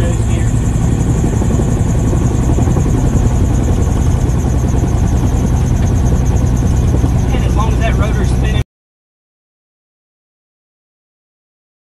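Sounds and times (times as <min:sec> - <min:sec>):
gyroplane engine drone: 0:00.0 - 0:08.6.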